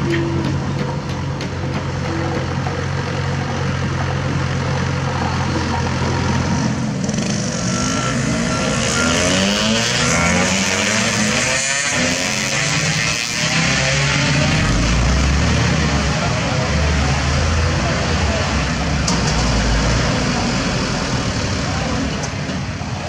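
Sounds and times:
heavy diesel engine running: 0:00.0 - 0:11.0
truck engine revving under load: 0:00.0 - 0:22.7.

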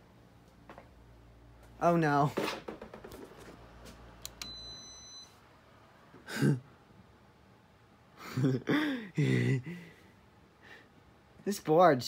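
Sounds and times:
faint high-pitched beep: 0:04.4 - 0:05.4.

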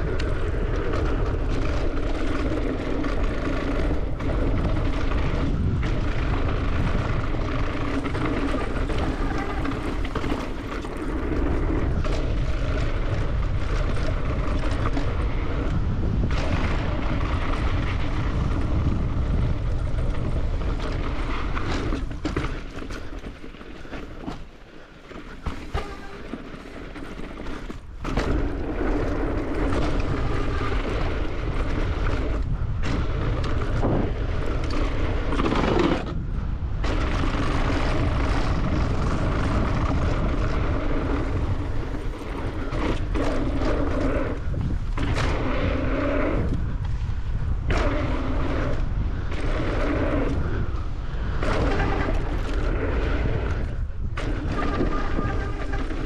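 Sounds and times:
wind rushing over microphone: 0:00.0 - 0:24.6, 0:25.3 - 0:56.0
bike tyre roar: 0:00.0 - 0:56.0
mountain bike rattling: 0:00.0 - 0:56.0.

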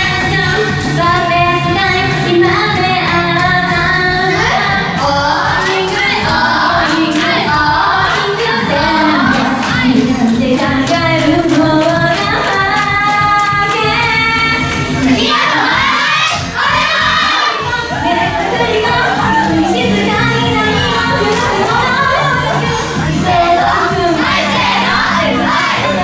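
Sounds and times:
karaoke backing track: 0:00.0 - 0:26.0
people clapping along: 0:00.0 - 0:26.0
woman singing pop song: 0:00.0 - 0:26.0.

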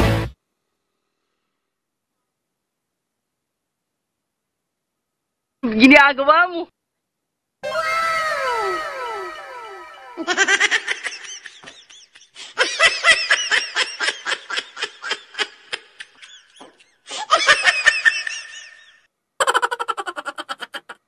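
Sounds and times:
rhythmic laughter: 0:10.2 - 0:21.0.

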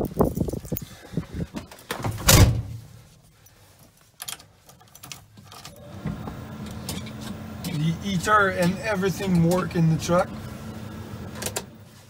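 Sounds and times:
heater blower fan humming: 0:05.5 - 0:12.0.

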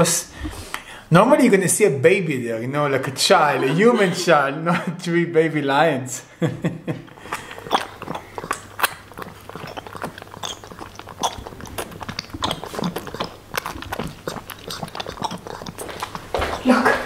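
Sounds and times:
lion cub sucking a bottle: 0:07.1 - 0:17.0.

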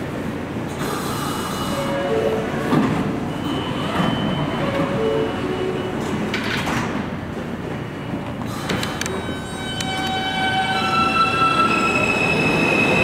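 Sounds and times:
train and station rumble: 0:00.0 - 0:13.0.

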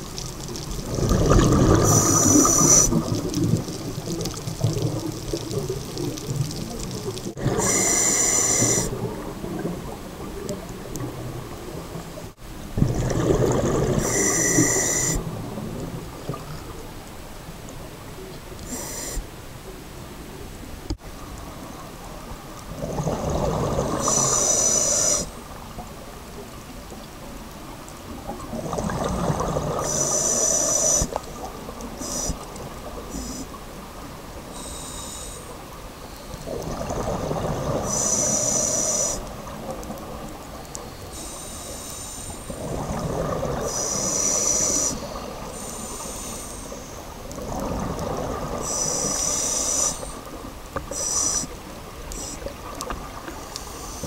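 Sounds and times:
exhaled bubbles rumbling: 0:00.0 - 0:08.0, 0:08.6 - 0:17.0, 0:21.2 - 0:24.4, 0:28.1 - 0:30.0, 0:36.4 - 0:37.9, 0:42.5 - 0:43.9, 0:47.1 - 0:48.8
regulator inhale hiss: 0:01.8 - 0:03.0, 0:07.6 - 0:08.9, 0:14.0 - 0:15.2, 0:18.6 - 0:19.3, 0:23.9 - 0:25.4, 0:29.8 - 0:31.2, 0:32.0 - 0:33.6, 0:34.5 - 0:36.4, 0:37.8 - 0:39.3, 0:40.8 - 0:42.7, 0:43.6 - 0:47.6, 0:48.6 - 0:52.5, 0:53.4 - 0:54.0.

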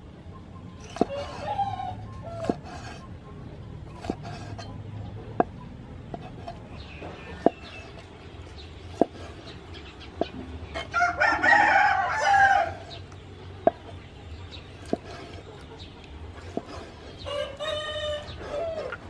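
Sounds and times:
rooster crowing: 0:01.0 - 0:02.8, 0:10.8 - 0:13.0, 0:17.2 - 0:19.0.

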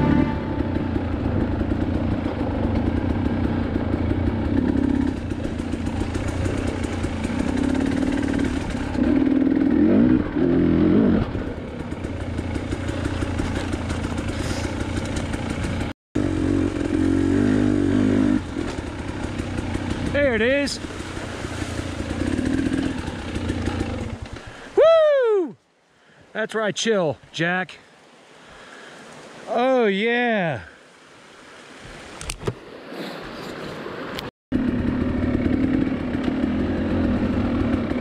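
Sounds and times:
dirt bike engine revving: 0:00.0 - 0:24.6, 0:34.5 - 0:38.0.

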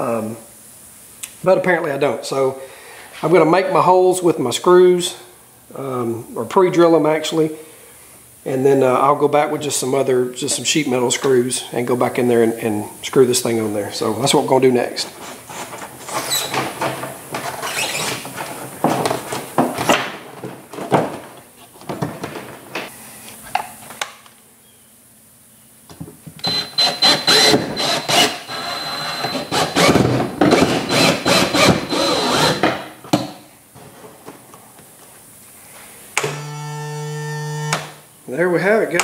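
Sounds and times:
cordless drill drilling: 0:26.4 - 0:32.6, 0:36.2 - 0:38.0.

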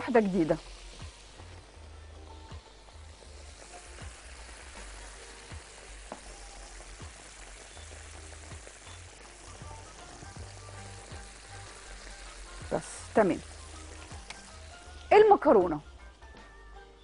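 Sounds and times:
cutlets sizzling in oil: 0:00.0 - 0:17.0.

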